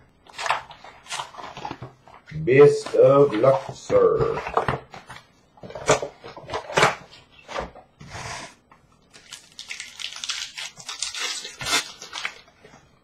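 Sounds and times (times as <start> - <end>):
plastic wrap and cardboard crackling: 0.3 - 7.1, 9.1 - 12.7.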